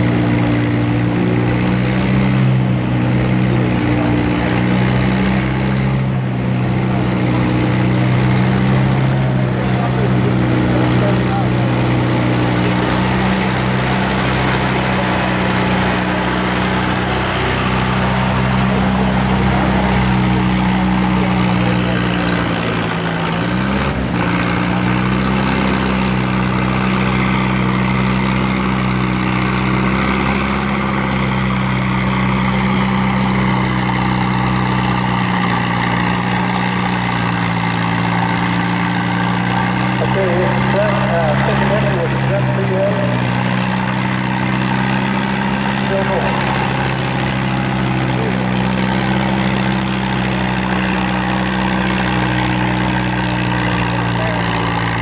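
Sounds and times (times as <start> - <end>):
tractor engine under load: 0.0 - 55.0.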